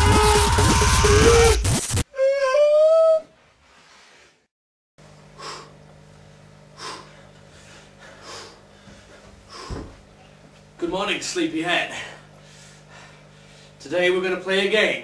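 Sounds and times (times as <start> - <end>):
steady low hum: 5.0 - 15.0
person breathing: 5.4 - 5.8, 6.7 - 9.9, 11.9 - 13.8.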